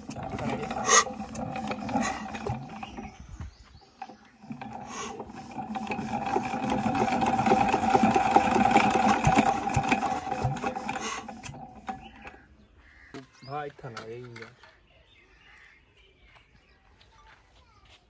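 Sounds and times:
diesel engine cranked by hand: 0.0 - 12.7.

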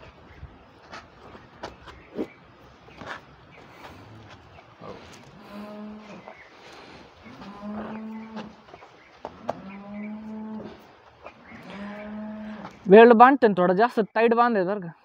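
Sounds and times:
cow mooing: 4.8 - 6.3, 7.3 - 8.6, 9.4 - 10.8, 11.5 - 12.8.

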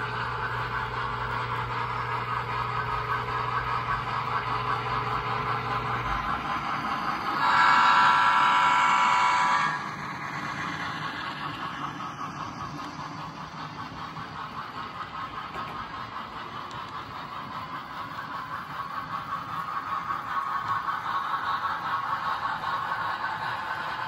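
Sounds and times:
model trains humming on track: 0.0 - 24.0
train horn blast: 7.4 - 9.9.

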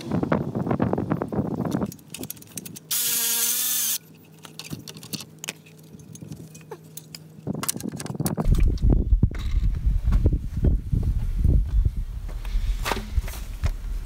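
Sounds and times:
cordless ratchet spinning: 2.2 - 4.0.

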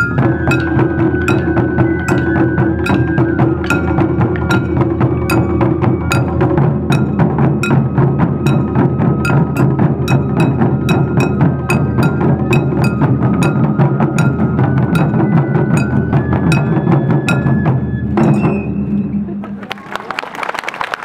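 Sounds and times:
taiko drums beaten with sticks: 0.0 - 19.4
flute melody: 0.0 - 19.7
people clapping: 19.6 - 21.0.

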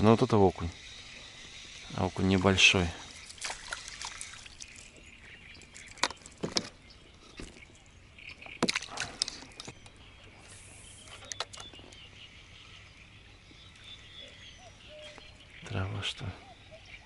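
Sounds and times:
water splash: 3.0 - 5.0, 8.6 - 9.2.

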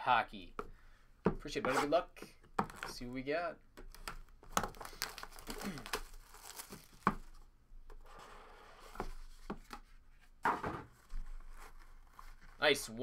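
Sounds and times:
plastic shrink wrap crinkling: 3.9 - 7.4.

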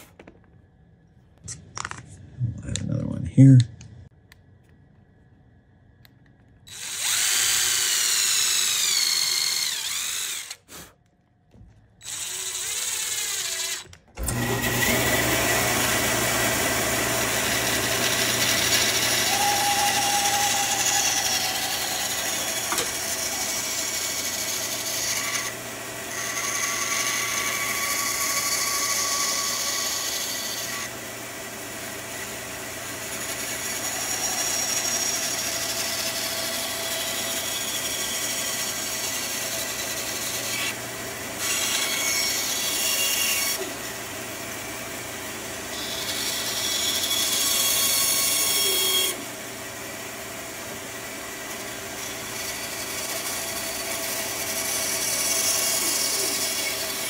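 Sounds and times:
bandsaw cutting wood: 6.7 - 10.9, 12.0 - 57.0
cordless drill whining: 6.7 - 10.9, 12.0 - 25.6.

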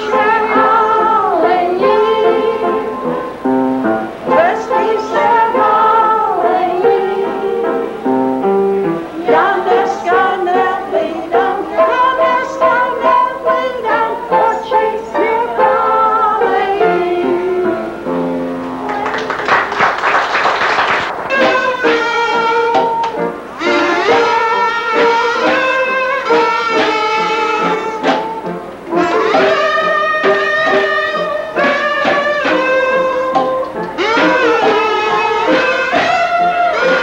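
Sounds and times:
kitchen band playing: 0.0 - 37.0.

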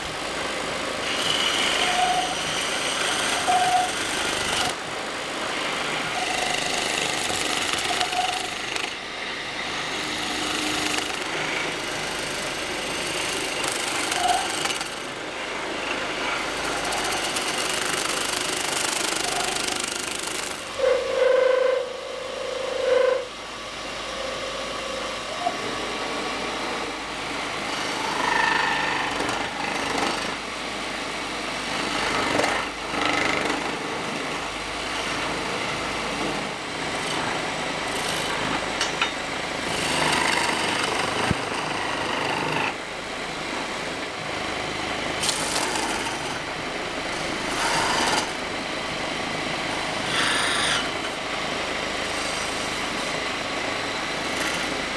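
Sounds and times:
wood lathe running: 0.0 - 21.0, 27.6 - 30.4, 34.9 - 42.8, 45.2 - 48.6, 49.2 - 53.0, 53.6 - 54.9
chisel scraping spinning wood: 1.0 - 4.7, 5.8 - 9.0, 47.2 - 48.4, 50.1 - 50.9.

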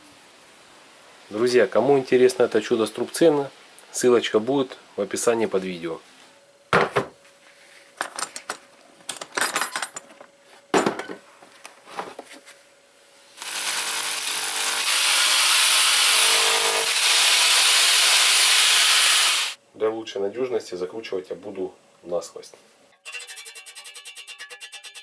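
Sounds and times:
rotary hammer drilling brick: 13.4 - 19.6.

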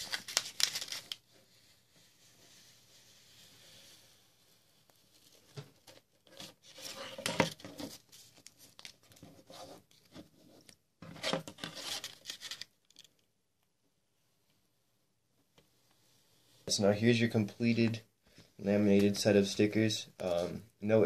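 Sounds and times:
contact paper crinkling and peeling: 0.0 - 3.1, 4.8 - 10.1, 11.6 - 13.1.

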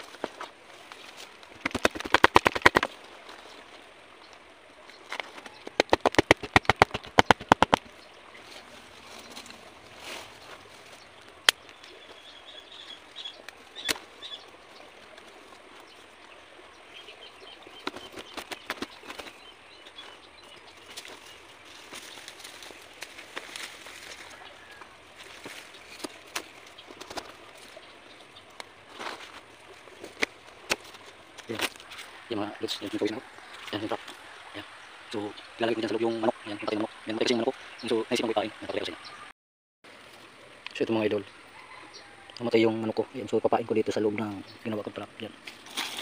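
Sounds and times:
sharp clicks: 5.6 - 7.9.

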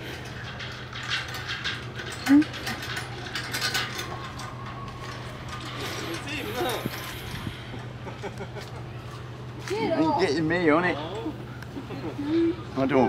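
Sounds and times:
hanging chains jangling: 0.0 - 7.4
footbridge rattling and clanking: 0.0 - 8.0.

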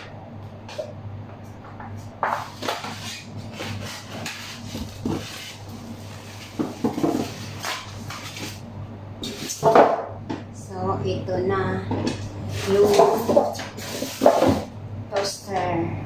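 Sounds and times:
foam packing scraping and knocking: 2.4 - 8.6
plastic wrap rustling: 2.6 - 8.6.

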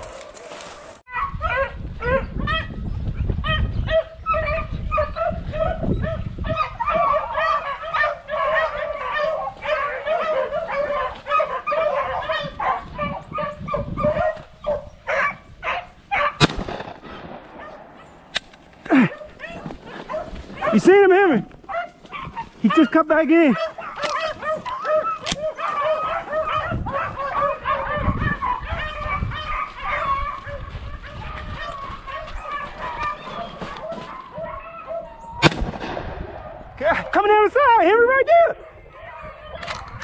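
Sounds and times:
hounds baying: 0.0 - 2.7, 3.4 - 16.5, 17.3 - 35.5, 36.3 - 40.0
sharp crack: 16.4 - 19.0, 35.4 - 36.6.

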